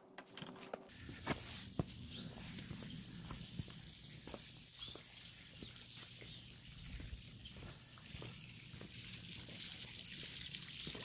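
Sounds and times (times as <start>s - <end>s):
pond water bubbling and splashing: 5.6s - 11.0s.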